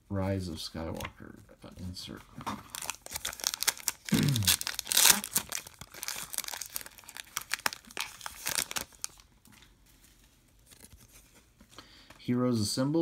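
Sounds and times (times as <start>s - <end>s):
foil wrapper crinkling and tearing: 2.6s - 9.3s.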